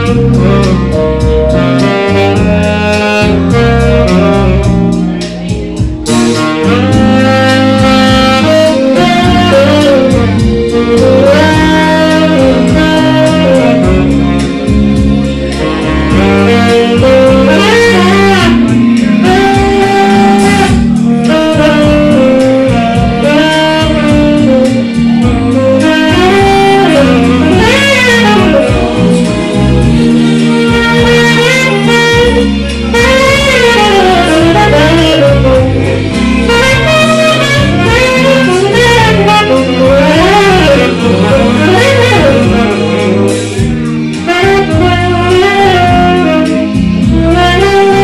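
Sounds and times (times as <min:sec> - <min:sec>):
low bass line: 0:00.0 - 0:48.0
saxophone playing jazzy melody: 0:00.0 - 0:48.0.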